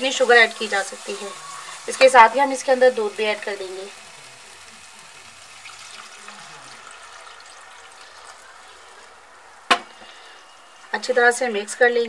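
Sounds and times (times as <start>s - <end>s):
milk pouring into wok: 0.2s - 10.9s
sharp knock: 9.7s - 9.9s.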